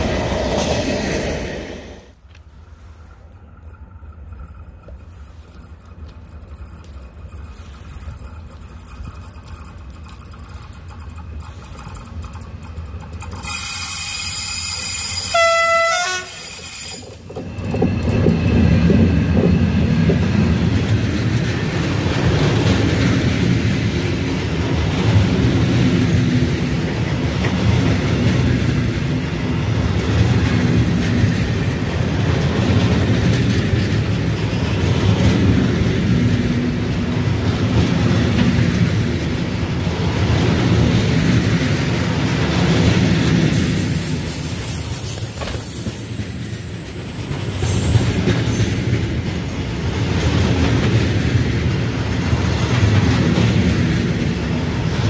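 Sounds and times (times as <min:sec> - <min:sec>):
freight train rumbling past: 0:00.0 - 0:55.0
locomotive horn blast: 0:14.0 - 0:16.5.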